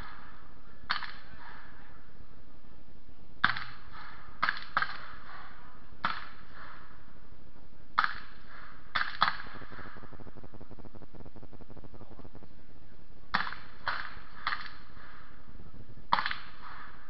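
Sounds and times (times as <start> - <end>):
steady hiss: 5.2 - 17.0
distant gunshots with echo: 8.0 - 11.4, 16.1 - 17.0.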